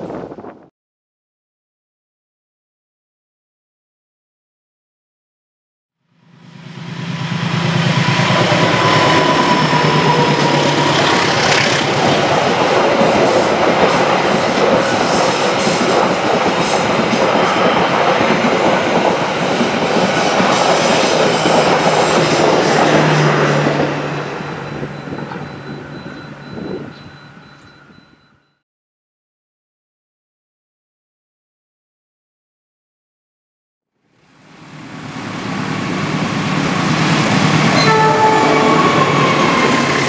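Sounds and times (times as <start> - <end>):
locomotive engine drone: 6.1 - 16.5, 20.0 - 28.6, 34.2 - 40.0
train wheels clattering on rails: 7.6 - 28.1.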